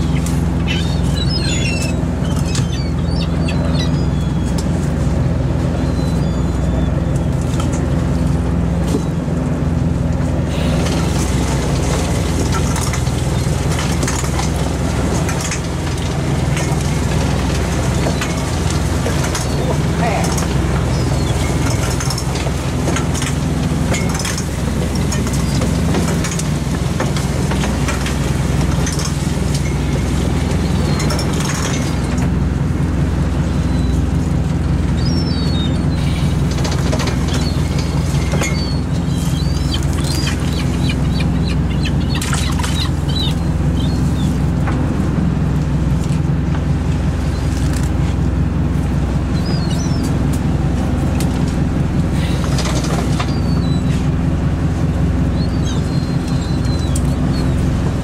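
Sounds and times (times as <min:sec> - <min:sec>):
boat engine and net hauler: 0:00.0 - 0:58.0
net and floats clicking and rattling: 0:10.6 - 0:32.5, 0:35.9 - 0:44.9.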